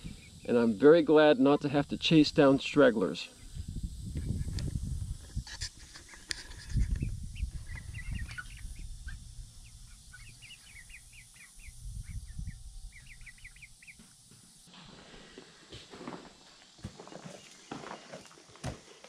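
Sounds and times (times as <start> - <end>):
chicks peeping: 4.2 - 14.1.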